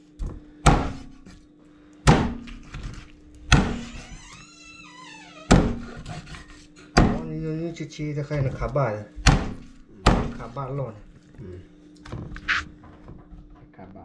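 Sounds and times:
blade chopping on wooden block: 0:00.6 - 0:01.3, 0:02.0 - 0:02.9, 0:03.5 - 0:03.9, 0:05.5 - 0:07.3, 0:09.2 - 0:10.6.

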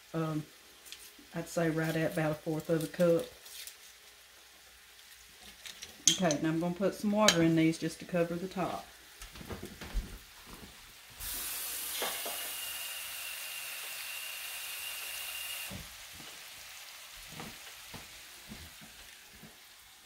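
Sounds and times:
onions sizzling in a skillet: 0:00.0 - 0:20.0
utensils clinking on pans: 0:05.4 - 0:06.5
water running into a pot: 0:11.2 - 0:16.7.

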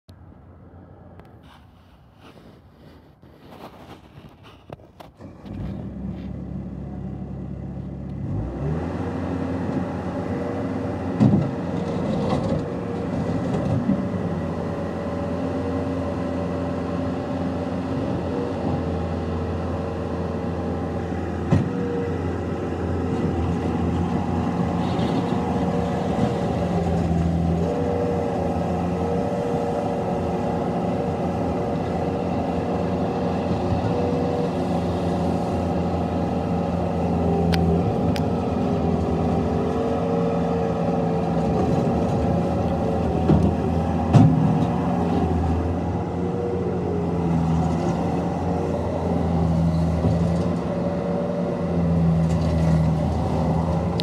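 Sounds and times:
bucket scraping gravel: 0:01.4 - 0:05.2
diesel engine running under load: 0:02.9 - 0:54.0.

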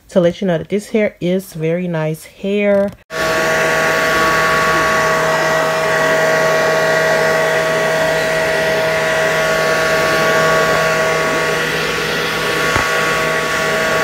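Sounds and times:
hair dryer running: 0:03.1 - 0:14.0.

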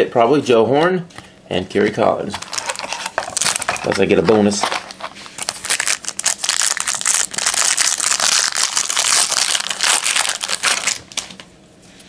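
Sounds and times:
foil wrapper tearing and crinkling: 0:02.4 - 0:11.5.

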